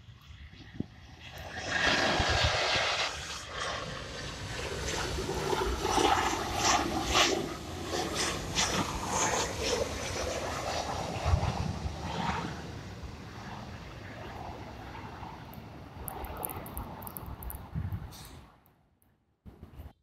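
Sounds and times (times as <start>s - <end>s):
jet airliner passing overhead: 0.0s - 18.6s
wind buffeting microphone: 0.2s - 18.5s.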